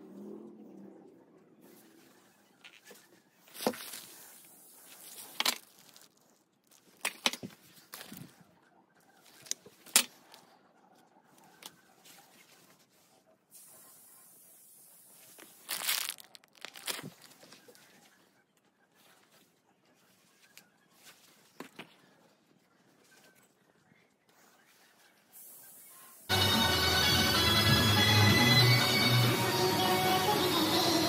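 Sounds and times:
plastic packaging crinkling: 0:04.9 - 0:08.3, 0:15.4 - 0:17.7.

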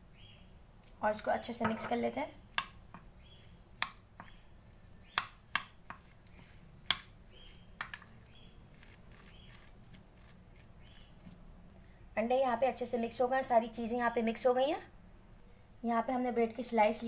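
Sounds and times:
utensil stirring in a bowl: 0:01.6 - 0:11.4
utensil clicking against bowl: 0:07.8 - 0:08.1.

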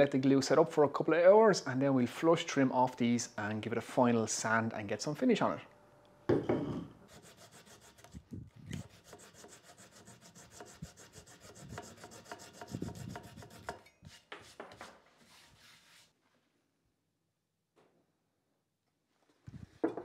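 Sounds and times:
saw cutting through wood: 0:07.1 - 0:13.8.

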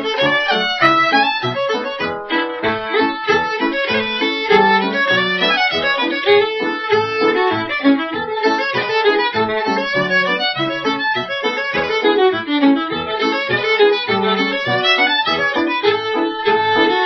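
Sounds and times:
lively fiddle tune: 0:00.0 - 0:17.0.

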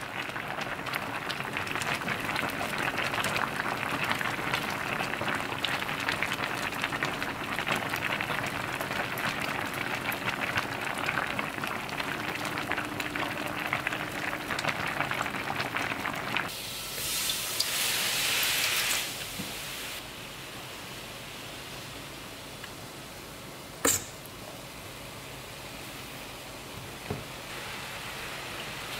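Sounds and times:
stew boiling with pops: 0:00.0 - 0:19.7
sauce sizzling in a wok: 0:00.0 - 0:22.9, 0:27.3 - 0:28.9.

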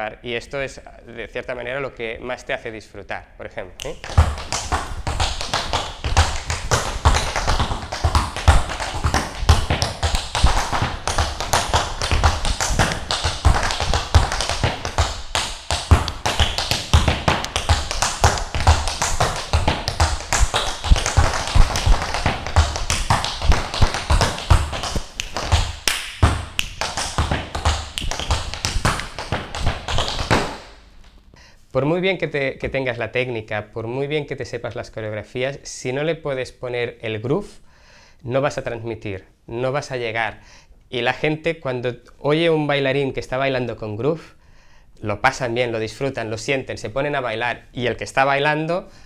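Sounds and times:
tap shoes on wooden floor: 0:03.8 - 0:31.2.

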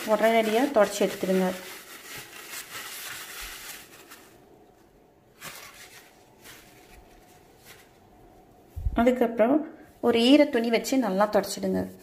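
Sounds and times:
paper towel rubbing on worktop: 0:00.0 - 0:04.4.

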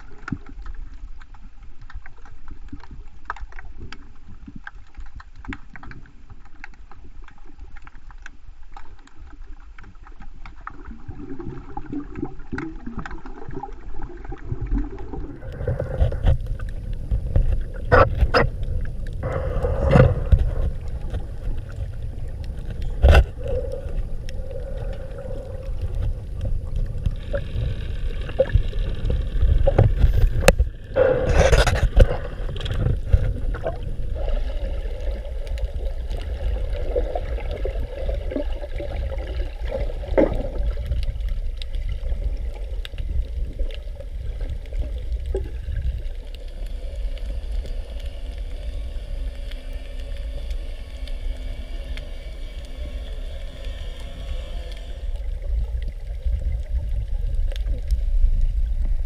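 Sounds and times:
underwater rumble of moving water: 0:00.0 - 0:59.0.

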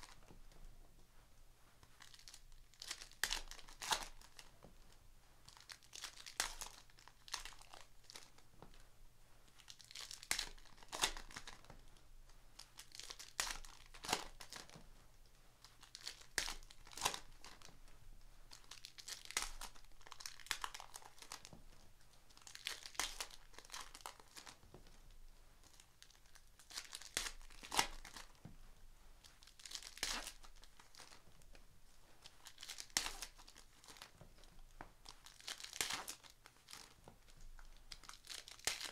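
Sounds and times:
foil wrappers tearing and crinkling: 0:02.0 - 0:04.5, 0:05.5 - 0:08.3, 0:09.6 - 0:11.6, 0:12.8 - 0:14.7, 0:15.8 - 0:17.6, 0:18.6 - 0:21.5, 0:22.4 - 0:24.6, 0:26.0 - 0:28.4, 0:29.4 - 0:31.2, 0:32.3 - 0:34.1, 0:35.0 - 0:37.0, 0:37.9 - 0:38.9.

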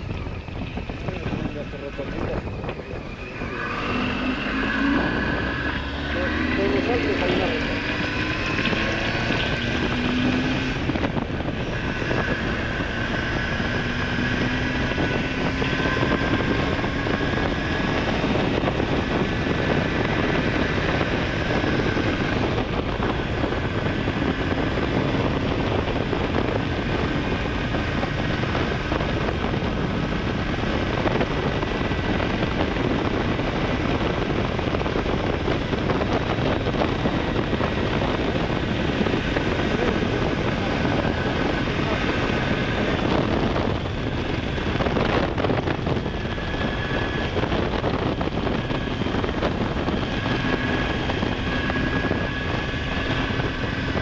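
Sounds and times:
motorcycle engine running: 0:00.0 - 0:54.0
wind rush on microphone: 0:00.0 - 0:54.0.

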